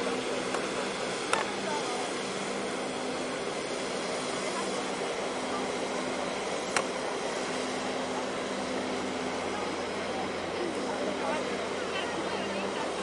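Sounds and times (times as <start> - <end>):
low drone of ship machinery: 0.0 - 13.0.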